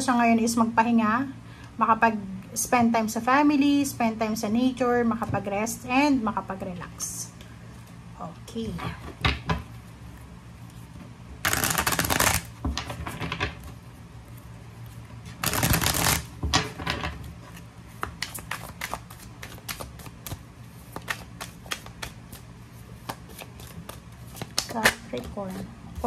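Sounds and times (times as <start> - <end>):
cards shuffled by hand: 10.6 - 13.2, 14.4 - 16.3, 17.5 - 26.0.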